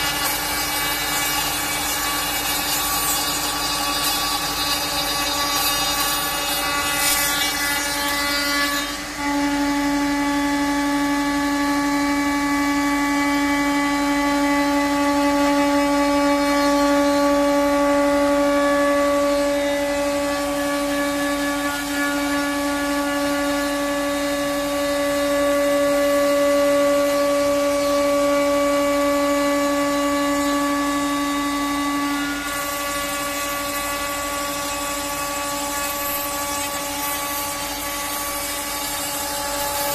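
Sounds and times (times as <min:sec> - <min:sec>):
hiss of cutting wood: 0:00.0 - 0:09.7, 0:18.5 - 0:39.9
router spindle whine: 0:00.0 - 0:39.9.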